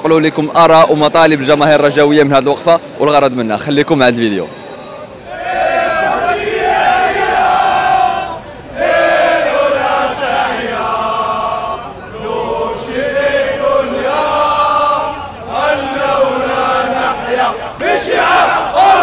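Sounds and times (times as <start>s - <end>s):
crowd of men chanting: 5.2s - 19.0s.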